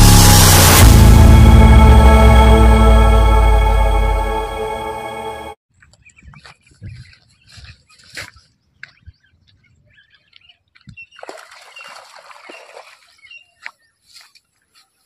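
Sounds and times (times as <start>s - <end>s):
fish splashing at water surface: 11.2s - 13.2s.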